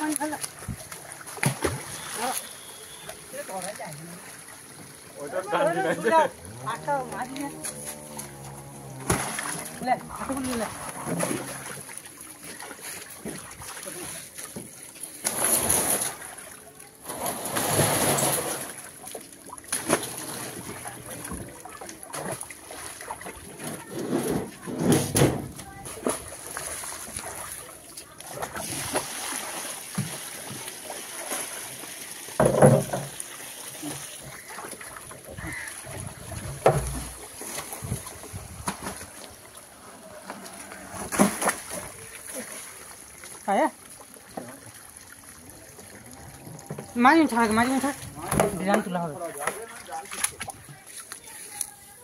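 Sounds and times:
pond water sloshing and splashing: 0:00.0 - 0:52.0
loud sudden splashes: 0:09.0 - 0:11.9, 0:15.2 - 0:18.8.

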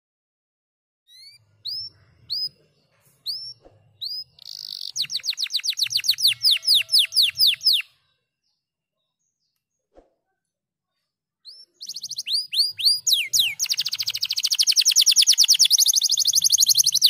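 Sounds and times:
canary singing: 0:01.1 - 0:08.2, 0:11.4 - 0:17.0.

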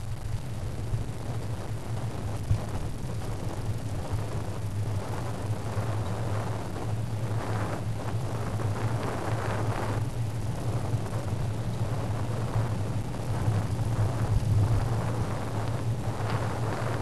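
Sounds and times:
wind and road noise: 0:00.0 - 0:17.0.

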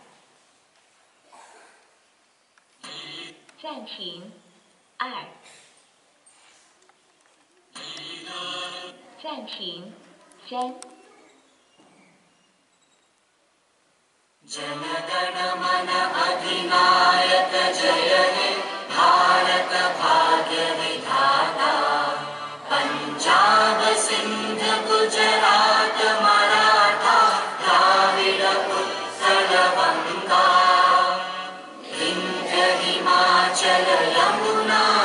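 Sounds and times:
group singing in chorus: 0:14.5 - 0:35.0.

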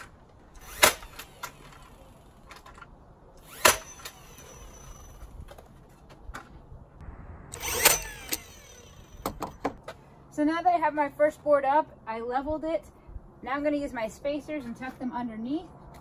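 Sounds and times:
nail gun firing: 0:00.6 - 0:01.9, 0:03.4 - 0:05.0, 0:07.6 - 0:09.8.

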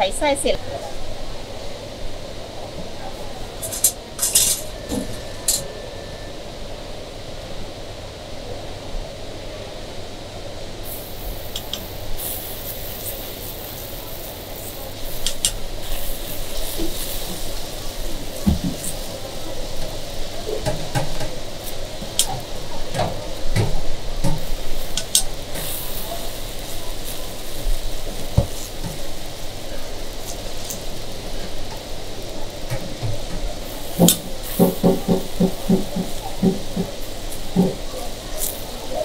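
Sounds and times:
batter scraping and sizzling: 0:10.8 - 0:23.6, 0:24.2 - 0:39.0
tool clicking on griddle: 0:11.4 - 0:19.1, 0:20.6 - 0:29.1, 0:32.7 - 0:37.8.

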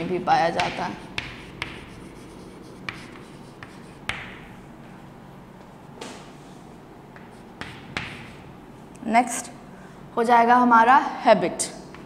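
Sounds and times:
chalk tapping on blackboard: 0:00.4 - 0:04.5, 0:07.1 - 0:08.5.

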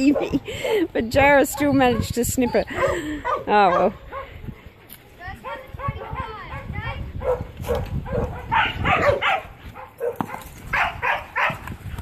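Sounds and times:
dogs barking: 0:01.5 - 0:04.4, 0:05.4 - 0:11.6.

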